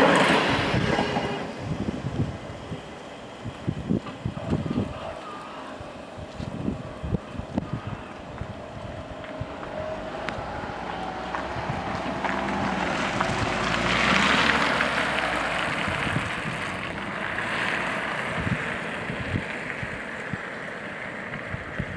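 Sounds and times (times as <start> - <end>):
car passing by: 0.0 - 2.2, 9.2 - 21.7
wind rumble on microphone: 0.0 - 21.9.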